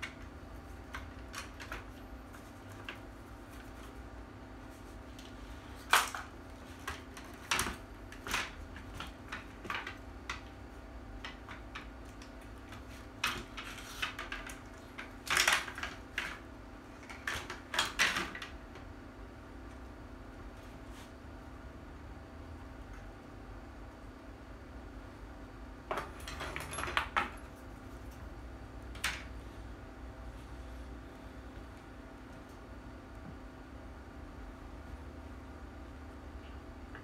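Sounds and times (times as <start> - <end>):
plastic parts clicking and clacking: 11.2 - 16.4
steady low hum: 18.5 - 37.0.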